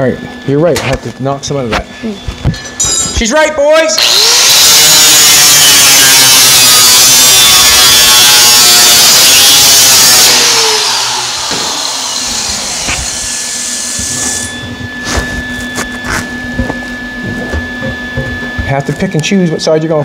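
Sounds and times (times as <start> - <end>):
angle grinder grinding steel: 4.0 - 16.4.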